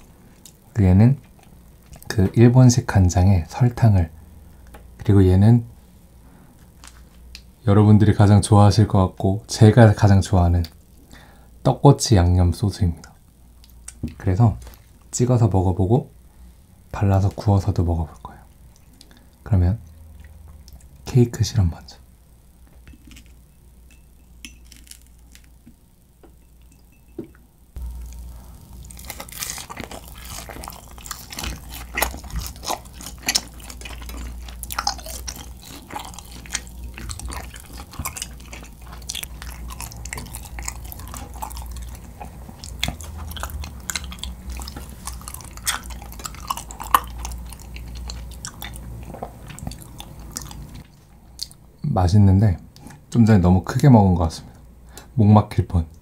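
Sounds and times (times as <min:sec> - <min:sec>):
close chewing with mouth clicks: 0:27.8 - 0:51.6.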